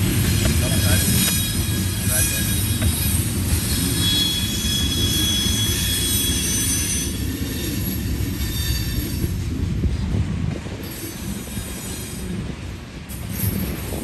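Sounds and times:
train wheels rumbling on rail: 0.0 - 14.0
high-pitched wheel squeal: 0.7 - 9.4.

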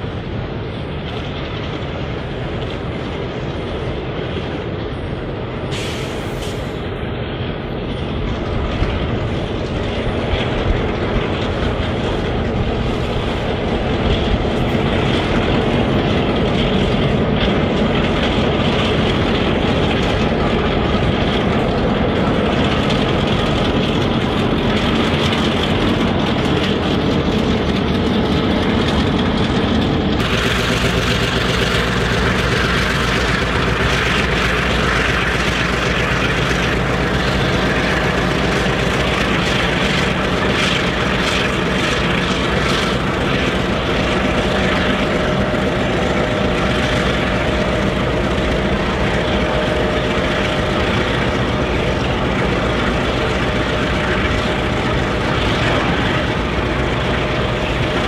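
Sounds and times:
diesel locomotive under load: 0.0 - 58.0
hiss: 5.7 - 6.8.

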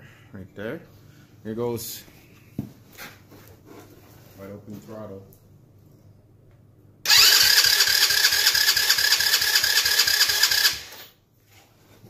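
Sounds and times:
electric starter whine: 7.0 - 11.2.

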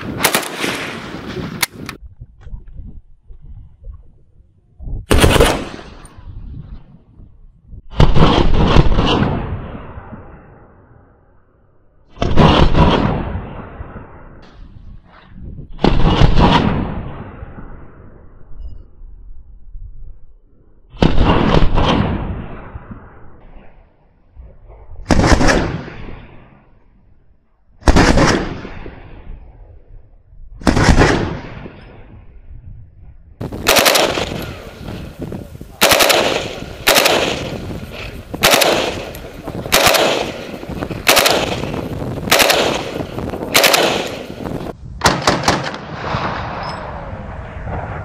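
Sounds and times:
rifle gunshots with echo: 0.0 - 1.9, 5.1 - 6.2, 7.9 - 10.0, 12.1 - 14.2, 15.8 - 17.6, 25.0 - 26.6, 27.8 - 29.3, 30.6 - 32.0, 33.4 - 47.9.

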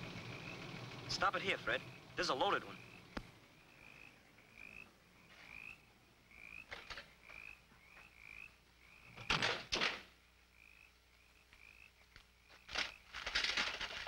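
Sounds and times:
rising chirps: 0.0 - 6.6.

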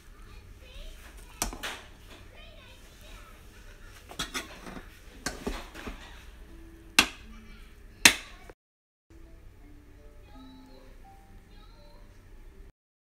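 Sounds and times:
faint music: 0.0 - 12.7
spoon scraping rice pot: 2.8 - 6.4.

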